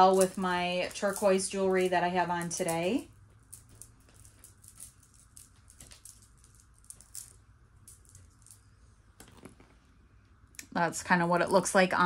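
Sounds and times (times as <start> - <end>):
stone beads clicking: 0.1 - 9.4.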